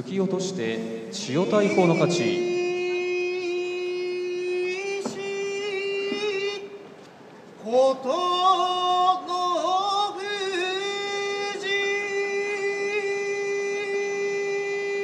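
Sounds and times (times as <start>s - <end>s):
man's drawn-out singsong call: 0.9s - 15.0s.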